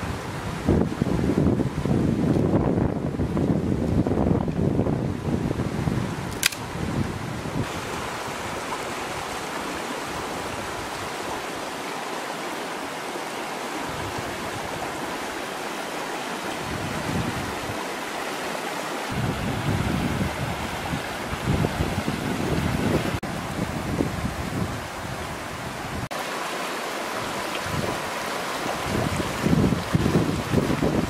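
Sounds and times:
wind buffeting microphone: 0.0 - 11.4, 16.6 - 18.0, 19.1 - 26.1, 27.2 - 31.0
sharp click: 6.3 - 6.7
river rushing over rocks: 7.6 - 31.0.

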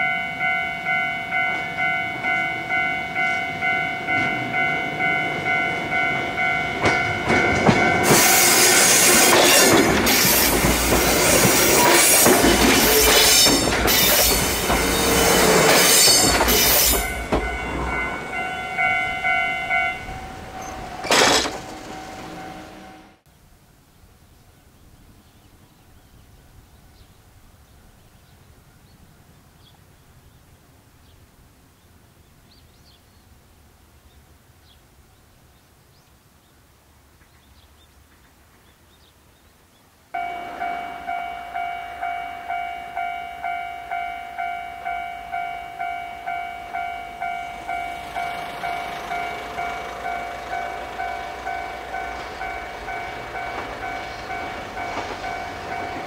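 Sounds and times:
electric train rumble: 0.0 - 23.2, 40.2 - 56.0
level-crossing warning bell: 0.0 - 23.2, 40.2 - 56.0.

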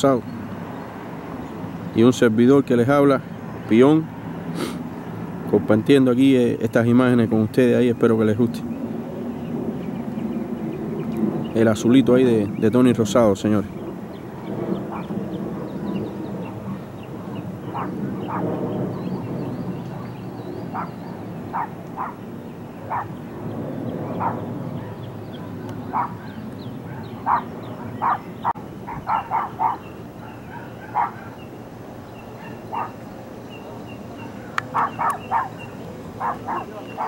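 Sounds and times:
dog barking: 17.2 - 18.5, 19.9 - 22.2, 22.9 - 23.2, 24.1 - 24.4, 25.4 - 28.3, 28.9 - 31.4, 32.4 - 33.0, 34.7 - 37.0.

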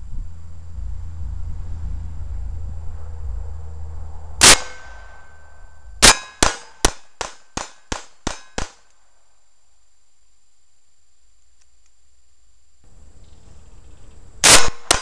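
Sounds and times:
pistol shots: 4.4 - 5.3, 6.0 - 8.9, 14.4 - 15.0.

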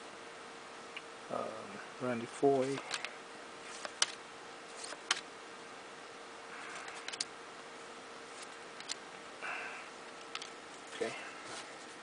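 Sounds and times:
faint steady hum: 0.0 - 12.0
card sliding against card: 2.6 - 5.2, 6.6 - 7.3
cards clicking: 2.7 - 3.1, 3.7 - 5.3, 6.7 - 7.3, 8.4 - 9.0.

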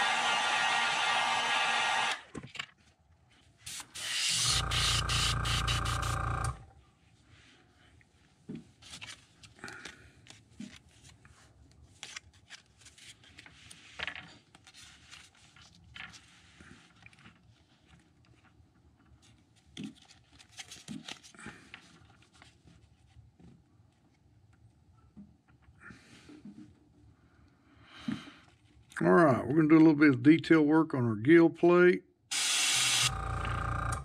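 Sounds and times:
heat gun blowing: 3.7 - 6.6, 32.3 - 34.0
low motor hum: 4.4 - 6.7, 33.1 - 34.0.

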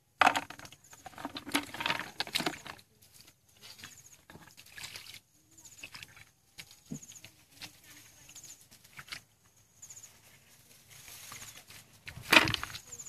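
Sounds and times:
fish knocking in plastic bucket: 0.2 - 2.8, 12.1 - 12.8
splashing in muddy water: 0.2 - 2.9, 3.6 - 6.4, 8.8 - 9.3, 12.0 - 13.0.

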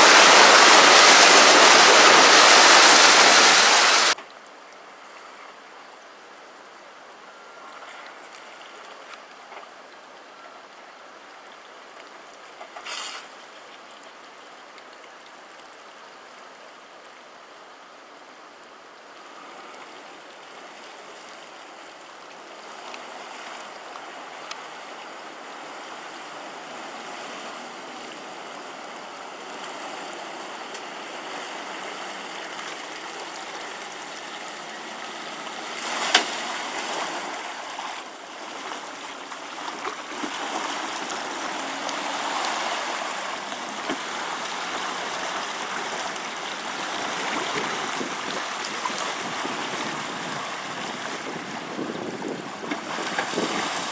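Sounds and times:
water splashing around vehicle: 0.0 - 4.2, 18.9 - 53.9.

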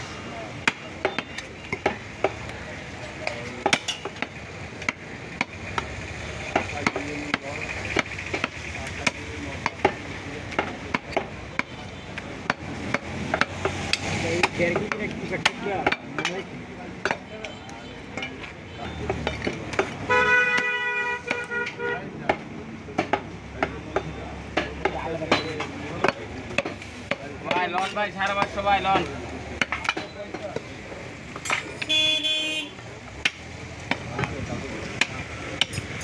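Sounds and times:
cleaver chopping meat on wooden block: 0.6 - 2.5, 3.2 - 17.3, 22.2 - 28.6, 35.0 - 35.8.

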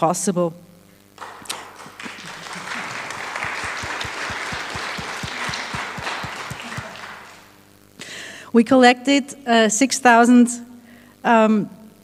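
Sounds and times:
audience applause: 1.2 - 7.6.

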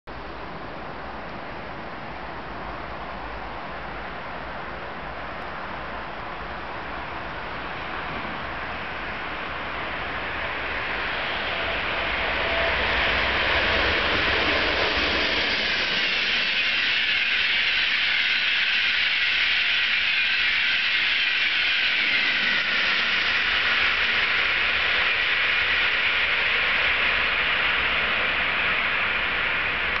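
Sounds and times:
high-speed train passing: 0.1 - 30.0.

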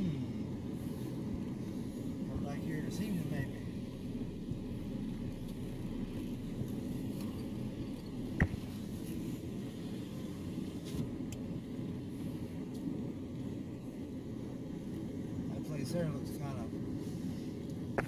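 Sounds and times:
car road rumble from inside: 0.0 - 18.0.

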